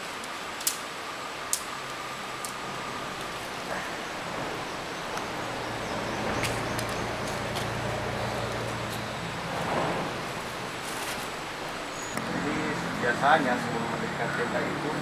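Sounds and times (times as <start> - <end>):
tent poles clicking: 0.0 - 0.9
steady outdoor hiss: 0.0 - 15.0
tent fabric rustling: 9.6 - 12.1.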